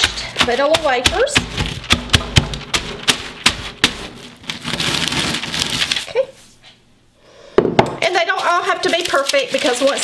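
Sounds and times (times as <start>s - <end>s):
cookies cracking and crunching: 8.0s - 10.0s.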